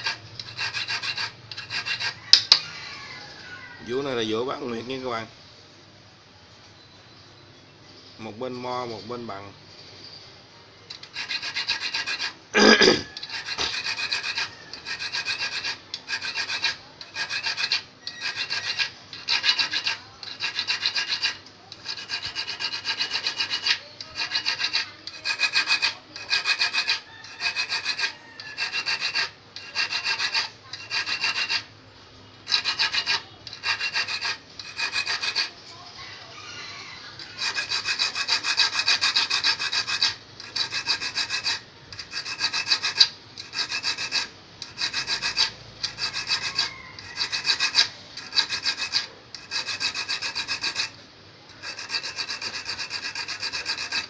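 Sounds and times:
steel file rasping on fishhook: 0.0s - 2.6s, 10.9s - 12.4s, 13.0s - 31.7s, 32.5s - 35.5s, 37.2s - 54.0s.

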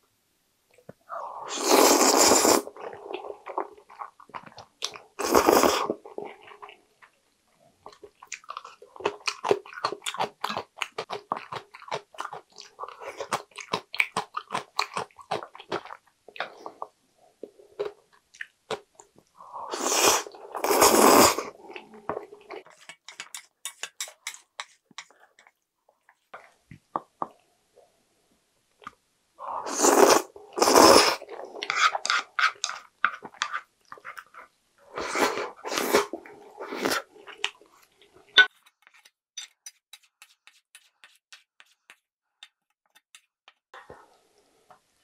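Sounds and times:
loud slurps of noodles: 1.5s - 3.3s, 5.2s - 6.0s, 19.7s - 21.6s, 29.6s - 32.3s, 34.9s - 37.1s
chewing noodles: 7.8s - 16.9s.

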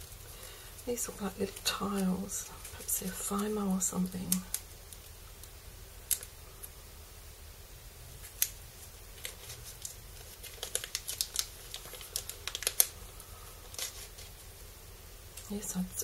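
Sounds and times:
plastic bag crinkling: 8.2s - 14.7s.

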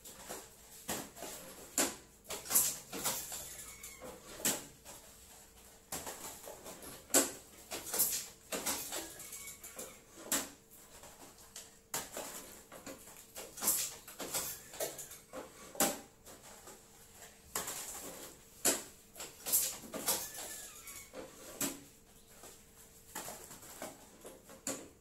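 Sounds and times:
plastic clacking and rustling: 0.0s - 25.0s.

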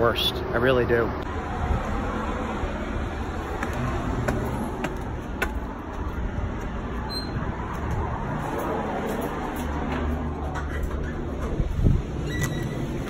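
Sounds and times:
road traffic rumble: 0.0s - 13.0s
footsteps on concrete steps: 3.3s - 8.3s.

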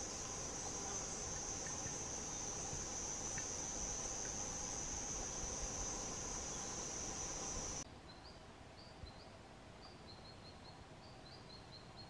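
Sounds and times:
high-pitched insect drone: 0.0s - 7.8s.

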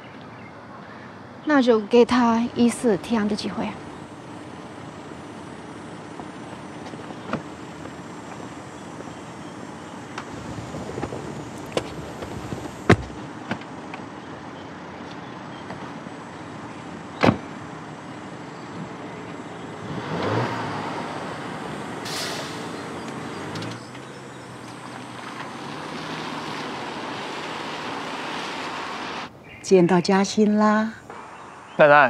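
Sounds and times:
car engine pulling away: 3.6s - 13.3s, 16.2s - 29.3s
car door shutting: 10.2s - 13.6s, 17.2s - 17.5s.

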